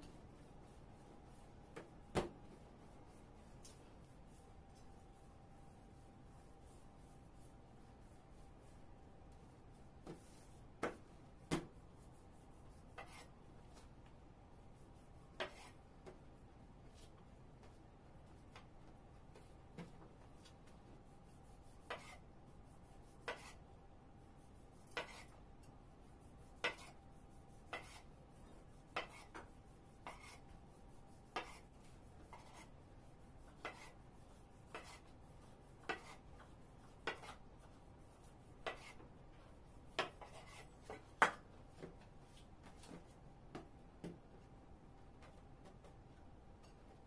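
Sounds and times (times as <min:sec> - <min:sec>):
knife cutting dough on wooden table: 0:15.4 - 0:15.8, 0:21.8 - 0:22.2, 0:23.2 - 0:23.6, 0:24.8 - 0:25.4, 0:26.6 - 0:27.0, 0:27.7 - 0:28.1, 0:28.8 - 0:30.6, 0:31.3 - 0:32.8, 0:33.4 - 0:34.0, 0:34.6 - 0:37.4, 0:38.6 - 0:39.0, 0:39.9 - 0:41.5.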